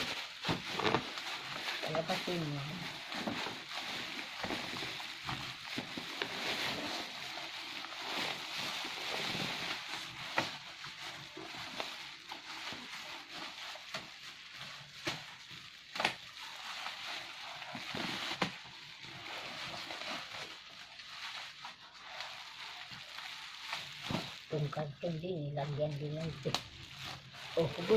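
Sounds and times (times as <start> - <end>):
bubble wrap crinkling: 0.0 - 27.9
bubble wrap snapping: 0.0 - 27.9.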